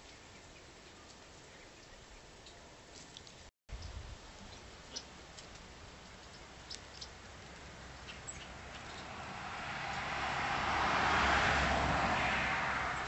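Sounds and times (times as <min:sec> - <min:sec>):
vehicle passing by: 0:07.2 - 0:13.0
bird chirps: 0:08.0 - 0:09.1.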